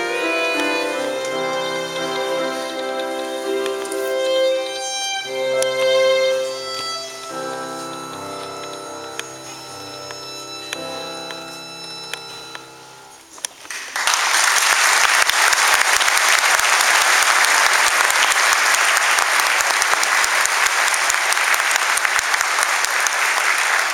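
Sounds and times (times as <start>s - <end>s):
music performance: 0.0s - 23.9s
audience applause: 13.7s - 23.9s.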